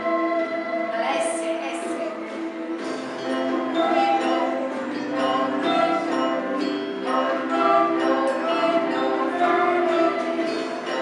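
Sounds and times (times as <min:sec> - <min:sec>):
electronic keyboards playing: 0:02.6 - 0:11.0.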